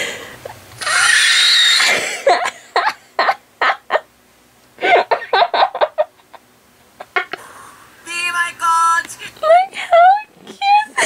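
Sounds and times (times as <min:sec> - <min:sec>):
high-pitched laughter: 0:00.8 - 0:04.1, 0:09.4 - 0:11.0.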